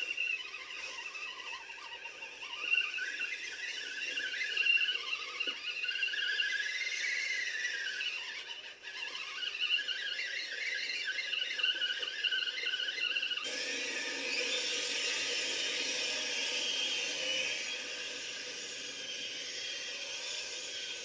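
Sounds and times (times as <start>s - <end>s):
electric motor whining: 13.3s - 21.0s.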